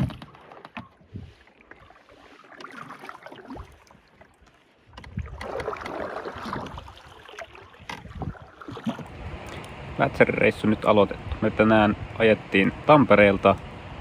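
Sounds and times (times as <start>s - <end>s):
paddle dipping and pulling: 0.0s - 14.0s
water swishing along hull: 0.0s - 14.0s
water rushing: 5.2s - 14.0s.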